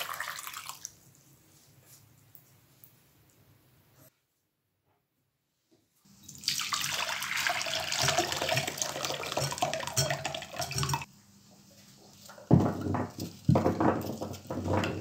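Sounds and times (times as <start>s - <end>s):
water pouring and splashing: 0.0s - 1.0s, 6.2s - 11.1s.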